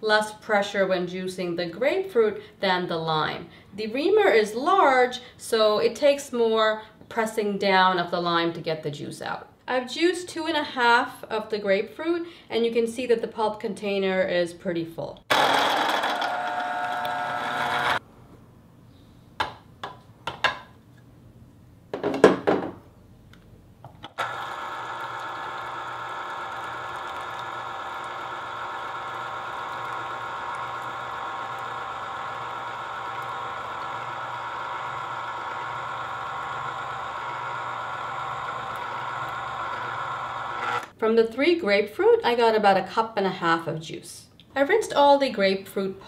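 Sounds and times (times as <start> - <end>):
juicer motor humming: 15.3 - 18.0, 24.1 - 40.9.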